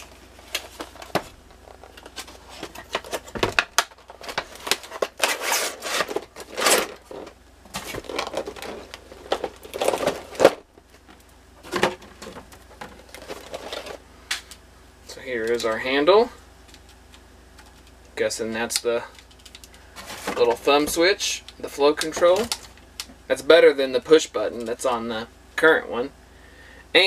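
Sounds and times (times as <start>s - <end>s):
packaging rustling and crinkling: 0.0s - 14.0s, 19.2s - 21.0s.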